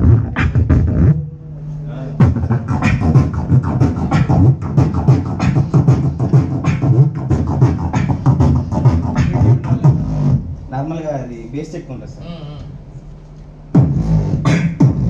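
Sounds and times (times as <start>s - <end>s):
person beatboxing through loudspeaker: 0.0s - 10.6s, 13.7s - 15.0s.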